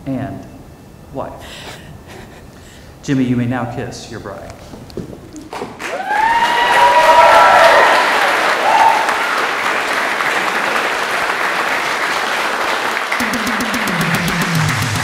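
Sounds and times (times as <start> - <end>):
crowd applauding and cheering: 5.4 - 15.0
people whooping: 5.8 - 10.9.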